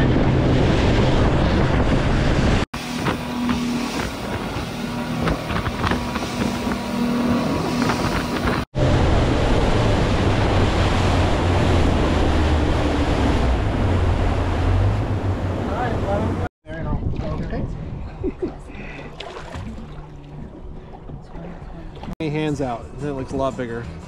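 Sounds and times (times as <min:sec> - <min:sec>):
boat engine drone: 0:00.0 - 0:16.5
wind on microphone: 0:00.0 - 0:22.1.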